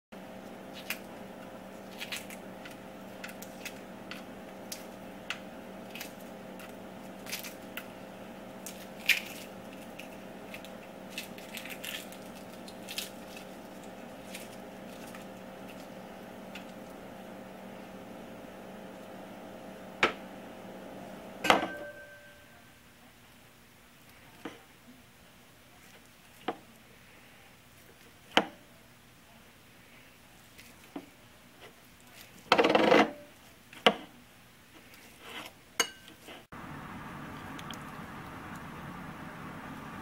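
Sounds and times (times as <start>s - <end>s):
steady background hum: 0.2s - 40.0s.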